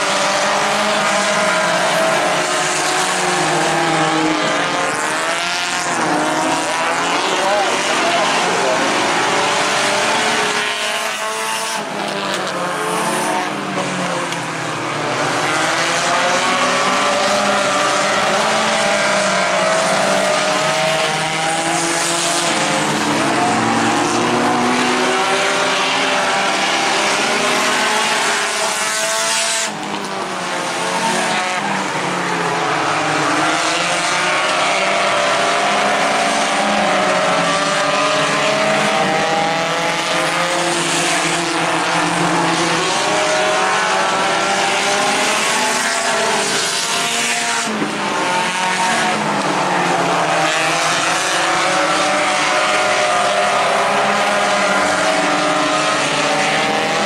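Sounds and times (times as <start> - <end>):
race car engines revving: 0.0 - 57.0.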